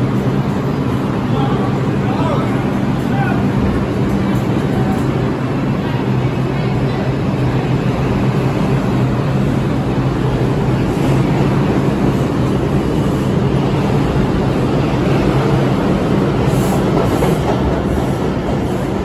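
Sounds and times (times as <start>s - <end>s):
subway train rumbling past: 0.0s - 19.0s.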